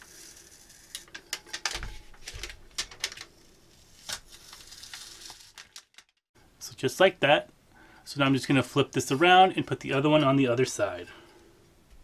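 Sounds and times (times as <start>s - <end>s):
tape peeling with crackling clicks: 0.6s - 6.2s.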